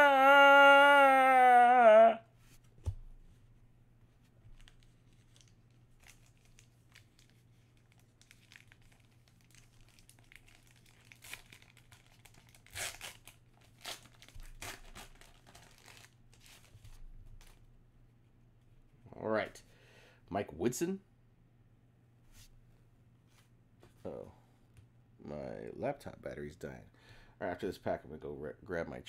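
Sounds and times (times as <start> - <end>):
wrapper crinkling and ripping: 4.6 - 17.6.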